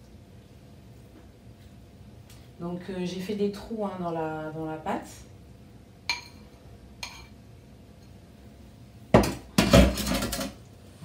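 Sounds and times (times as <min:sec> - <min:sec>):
cutlery clattering against dishes: 0:09.2 - 0:10.6.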